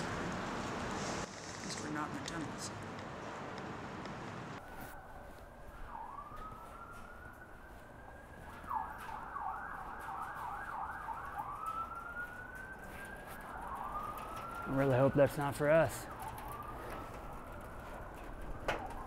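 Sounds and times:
emergency siren wailing and yelping: 4.6 - 19.0.

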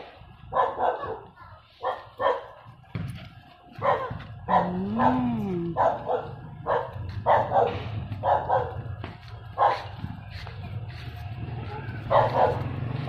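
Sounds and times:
dog barking: 0.5 - 2.6, 3.8 - 9.0, 9.6 - 10.0, 11.7 - 12.8.

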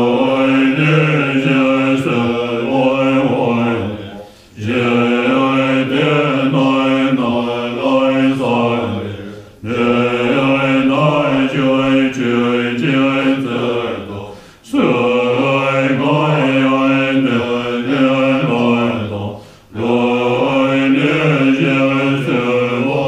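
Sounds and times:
monks chanting in low voices: 0.0 - 23.0.

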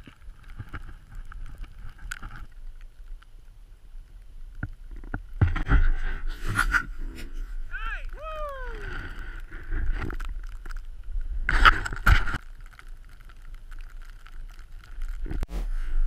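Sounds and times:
wind rumbling on microphone: 0.0 - 16.0
high whooping yell: 7.7 - 9.0.

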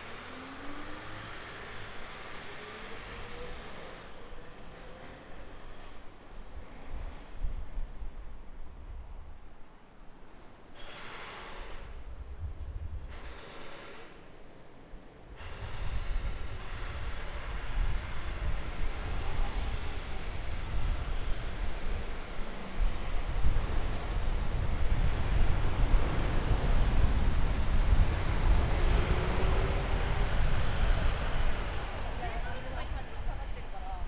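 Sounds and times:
traffic noise: 0.0 - 34.0
wind buffeting microphone: 11.8 - 13.4, 15.3 - 34.0.

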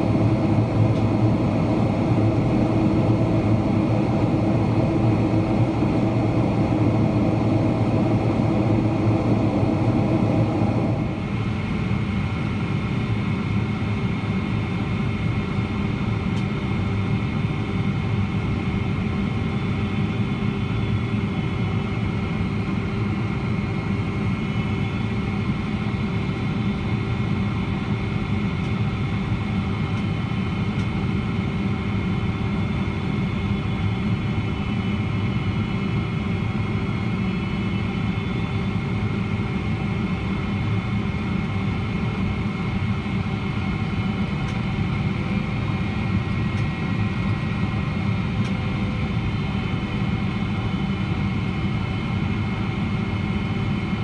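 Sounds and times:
steady whining tones: 0.0 - 13.6
airplane cabin roar: 0.0 - 54.0.

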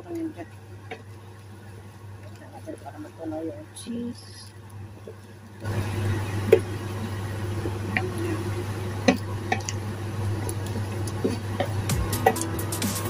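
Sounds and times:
steady low hum: 0.0 - 13.0
utensil clicking against pan: 10.5 - 12.5.

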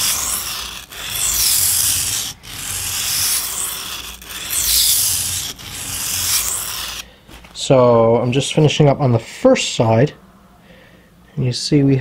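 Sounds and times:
knife scraping on whetstone: 0.0 - 7.1.

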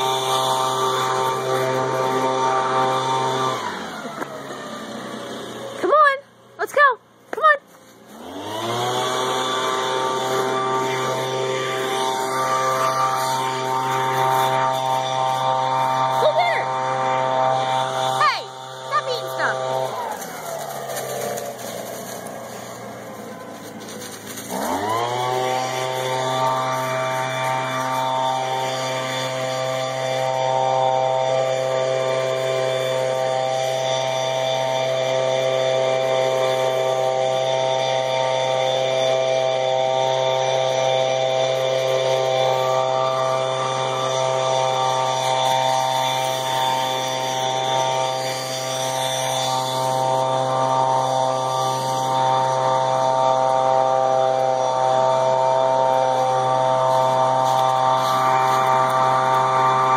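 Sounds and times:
engine running steadily: 0.0 - 59.9.

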